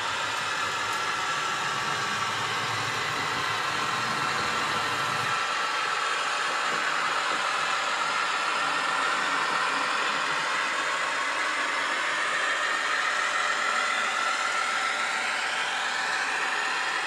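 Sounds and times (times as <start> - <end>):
locomotive diesel engine running: 0.0 - 5.4
hiss: 0.0 - 17.0.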